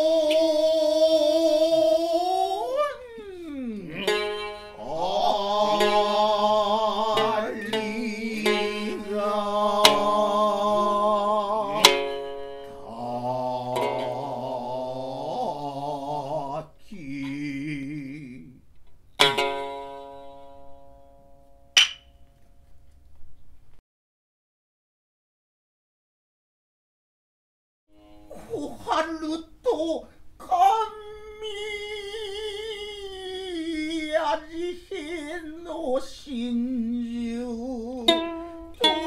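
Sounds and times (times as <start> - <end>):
male voices chanting: 0.0 - 12.1, 12.8 - 18.6, 28.4 - 39.0
shamisen plucks: 0.0 - 15.6, 19.2 - 23.0, 28.0 - 30.1, 36.7 - 39.0.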